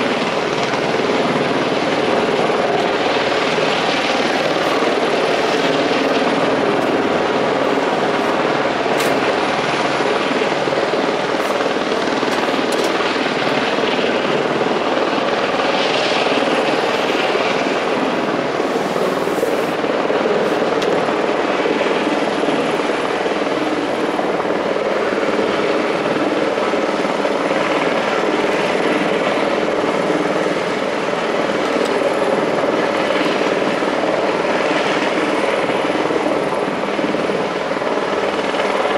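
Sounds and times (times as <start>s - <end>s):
helicopter flying past: 0.0s - 38.9s.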